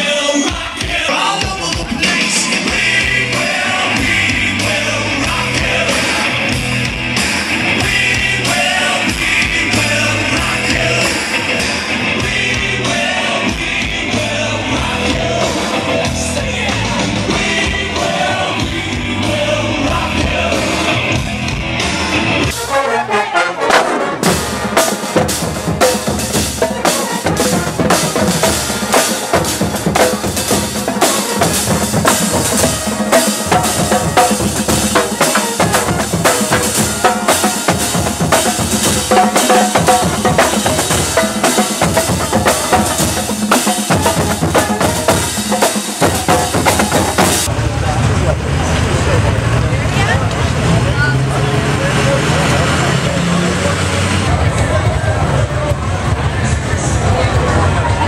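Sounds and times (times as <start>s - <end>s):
marching band drumline: 0.5s - 11.6s, 23.5s - 47.5s.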